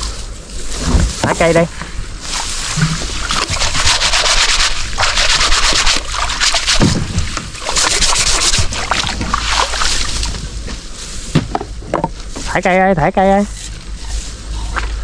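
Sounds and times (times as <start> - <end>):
water splashing: 2.2 - 10.7.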